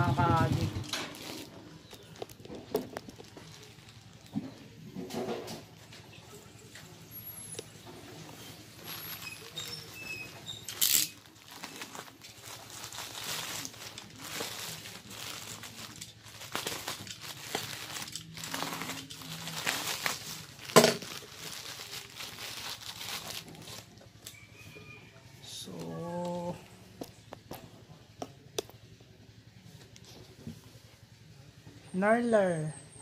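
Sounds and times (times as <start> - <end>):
plastic bag crinkling and tearing: 0.2 - 4.5, 7.2 - 24.4.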